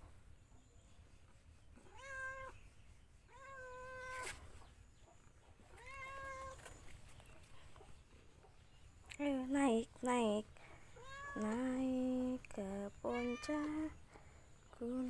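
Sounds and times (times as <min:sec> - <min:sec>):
cat meowing: 0:01.9 - 0:02.6, 0:05.7 - 0:06.6, 0:11.0 - 0:11.4.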